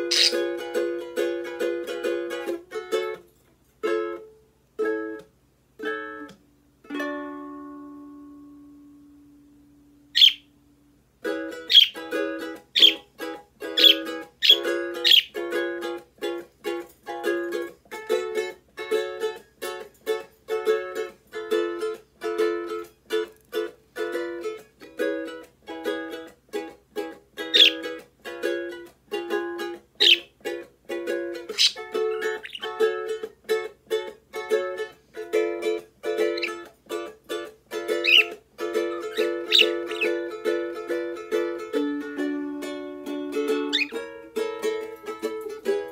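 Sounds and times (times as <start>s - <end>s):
bird chirping: 0.0s - 0.5s, 10.1s - 10.6s, 11.6s - 12.1s, 12.7s - 13.1s, 13.7s - 15.4s, 27.4s - 28.0s, 30.0s - 30.4s, 31.5s - 32.8s, 36.2s - 36.6s, 38.0s - 38.4s, 39.0s - 40.3s, 43.7s - 44.0s
ukulele strumming: 0.0s - 45.9s.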